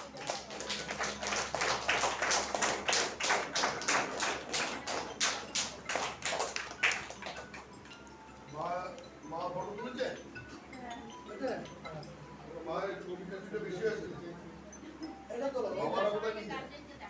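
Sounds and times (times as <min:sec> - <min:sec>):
people clapping: 0:00.0 - 0:09.1.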